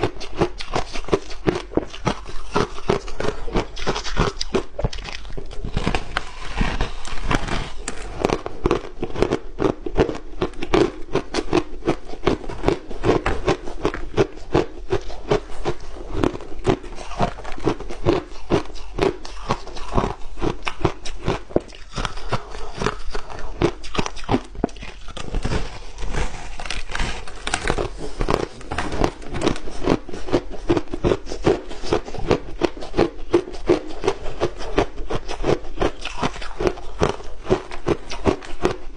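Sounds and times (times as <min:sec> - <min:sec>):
crushed ice being chewed: 0:00.0 - 0:38.9.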